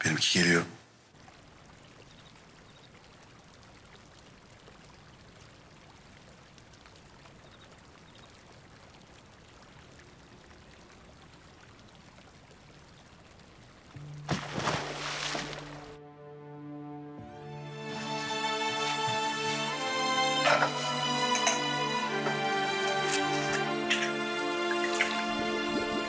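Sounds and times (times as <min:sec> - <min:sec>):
gently running water: 0:01.2 - 0:16.0, 0:17.6 - 0:26.0.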